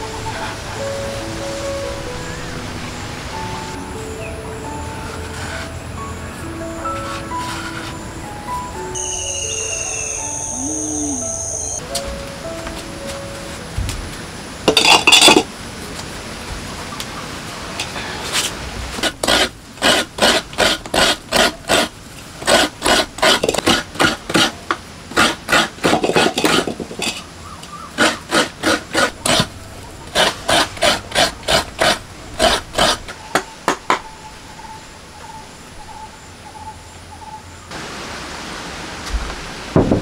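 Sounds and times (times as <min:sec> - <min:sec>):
coconut scraping on grater blade: 0:19.0 - 0:27.2, 0:28.0 - 0:33.2.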